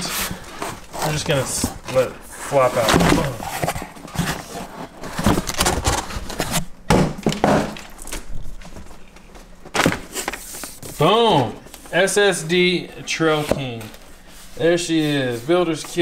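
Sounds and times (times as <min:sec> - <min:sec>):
cardboard box rustling and scraping: 0:00.0 - 0:06.7.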